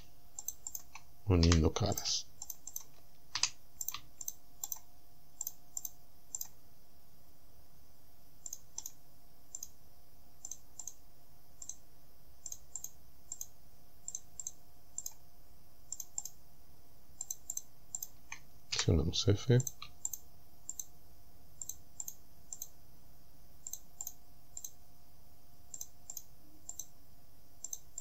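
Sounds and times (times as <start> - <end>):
mouse and keyboard clicks: 0.0 - 6.6
faint steady hum: 0.0 - 28.0.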